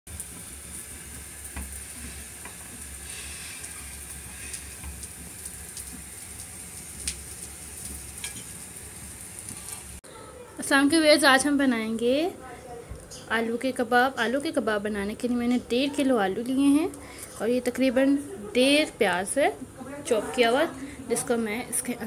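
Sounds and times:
hot oil sizzling in a pan: 0.1s - 10.0s
oil popping and crackling: 0.1s - 10.0s.

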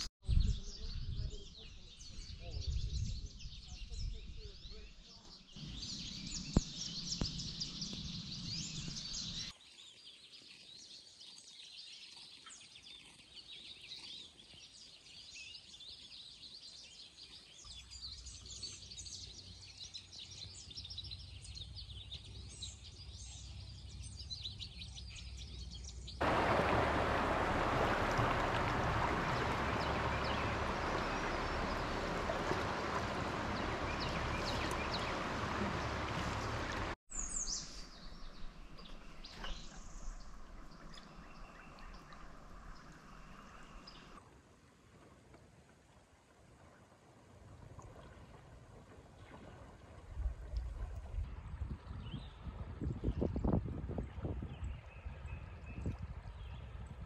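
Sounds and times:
small birds chirping: 0.0s - 44.2s
loud rushing noise: 26.2s - 37.0s.

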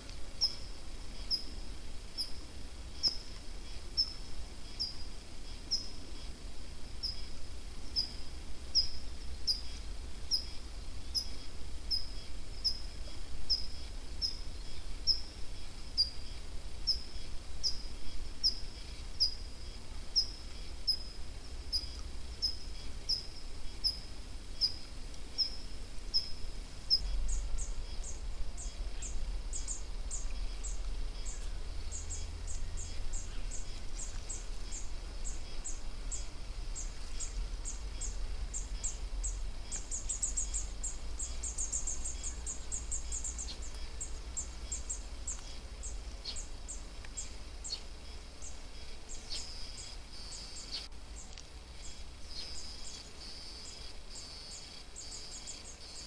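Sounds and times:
low steady rumble: 0.0s - 53.2s.

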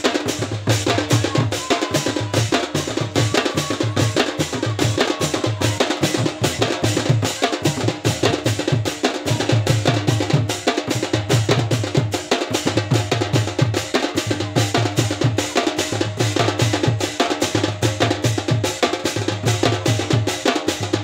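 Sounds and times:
percussion-led dance music: 0.0s - 21.0s.

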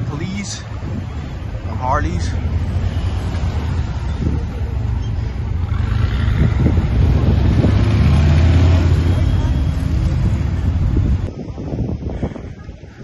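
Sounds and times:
vehicle engine running close: 0.0s - 11.4s
low rumble of street traffic: 0.0s - 13.0s
wind on microphone: 0.0s - 13.0s.

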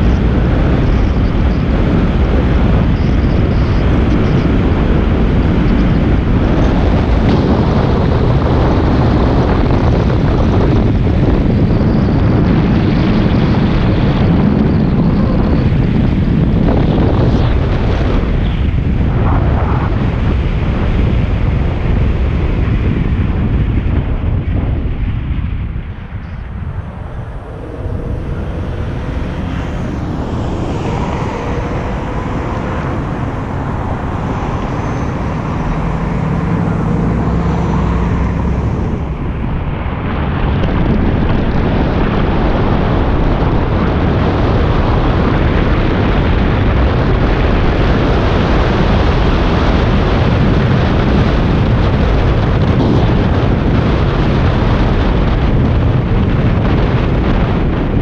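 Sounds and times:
car road and tyre noise: 0.0s - 58.0s
wind on microphone: 0.0s - 58.0s
faint steady hum: 26.1s - 45.4s.

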